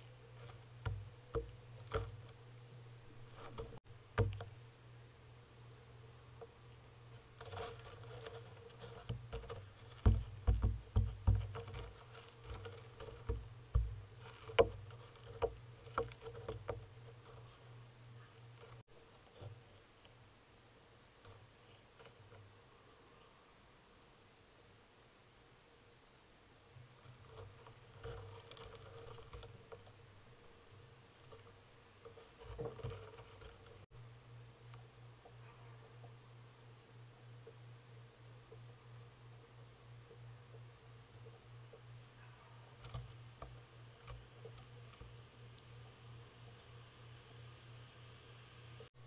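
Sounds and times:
heavy thumps: 0.4s - 2.4s, 9.0s - 17.0s
gull pecking taps on railing: 0.8s - 2.3s, 3.6s - 4.5s, 9.1s - 17.5s.

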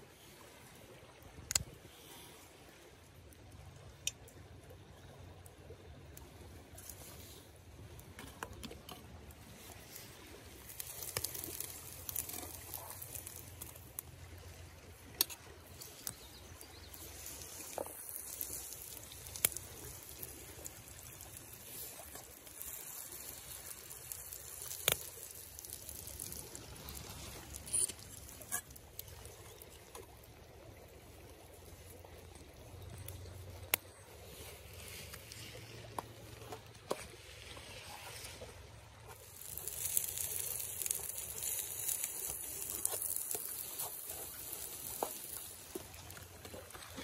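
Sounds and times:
river flowing: 0.0s - 47.0s
bun sizzling in oil: 9.6s - 29.9s, 39.1s - 46.8s.

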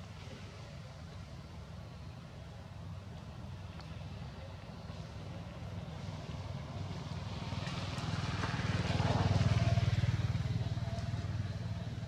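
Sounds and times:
vehicle engine passing by: 4.8s - 12.0s.

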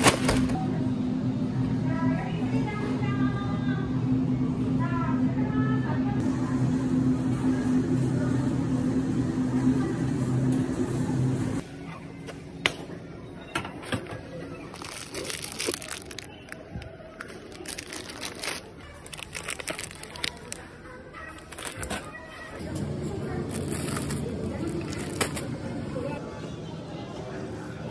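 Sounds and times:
steady low hum: 0.0s - 11.8s
plastic packaging crinkling: 14.7s - 20.7s, 21.3s - 22.2s, 23.5s - 25.5s.

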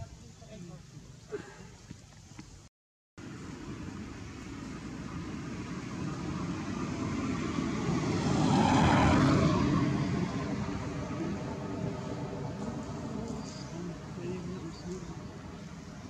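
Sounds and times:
engine passing by: 3.2s - 16.0s.

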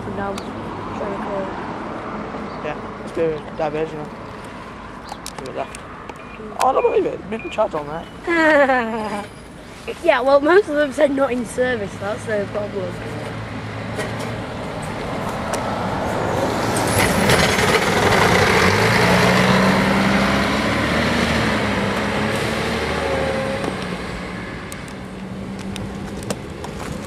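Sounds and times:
bus engine passing by: 8.2s - 27.0s.

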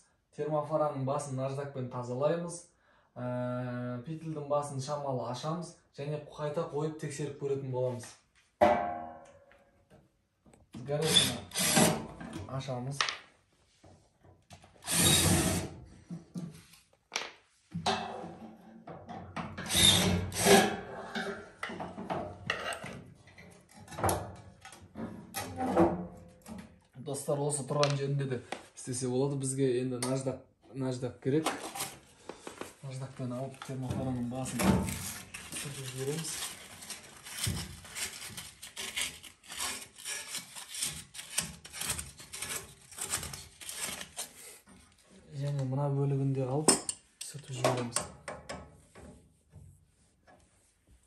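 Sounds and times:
sandpaper rasping on metal: 35.0s - 44.5s.

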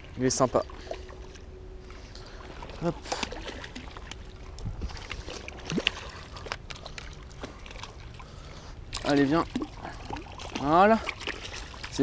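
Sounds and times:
fish splashing in water: 2.5s - 12.0s.

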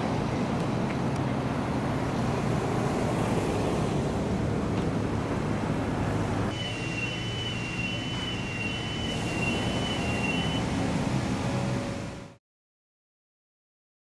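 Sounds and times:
distant traffic: 0.0s - 12.4s
wind: 0.0s - 12.4s
two-tone electronic beep: 6.5s - 10.6s.

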